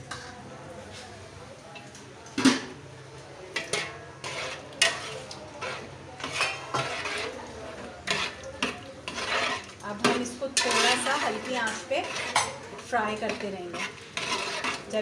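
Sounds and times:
frying sizzle in oil: 0:02.7 - 0:15.0
metal spoon scraping metal pot: 0:03.6 - 0:07.4, 0:08.0 - 0:15.0.

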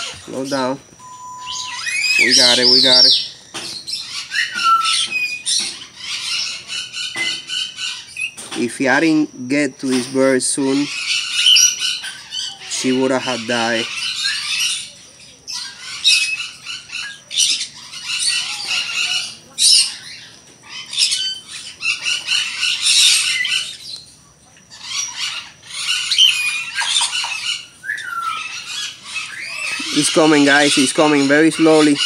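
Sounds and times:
cockatiel squawking: 0:00.0 - 0:03.3.

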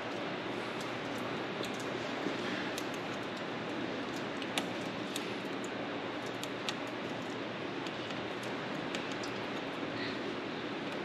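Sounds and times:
steady background hiss: 0:00.0 - 0:11.0
metal rivets clicking: 0:02.7 - 0:09.8.

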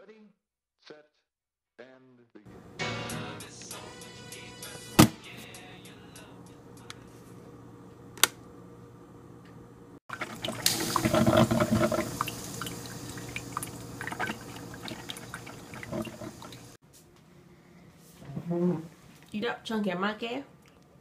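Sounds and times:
power switch click: 0:08.2 - 0:08.4
coffee maker gurgling and hissing: 0:10.1 - 0:16.8.

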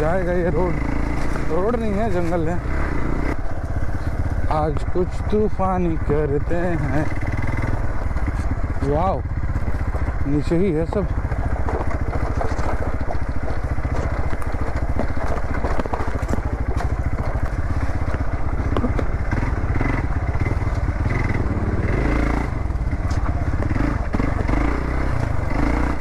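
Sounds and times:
motorcycle engine running: 0:00.0 - 0:26.0
rattles and clicks: 0:08.0 - 0:21.0.

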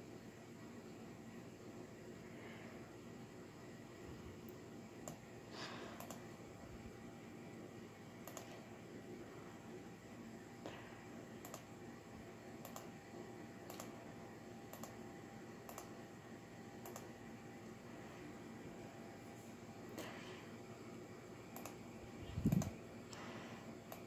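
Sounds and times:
faint low hum: 0:00.0 - 0:24.0
computer clicks: 0:05.0 - 0:05.2, 0:06.0 - 0:06.2, 0:08.2 - 0:08.5, 0:11.4 - 0:11.7, 0:12.6 - 0:12.9, 0:13.6 - 0:13.9, 0:14.7 - 0:15.0, 0:15.6 - 0:15.9, 0:16.8 - 0:17.1, 0:21.5 - 0:21.8, 0:22.4 - 0:22.8.

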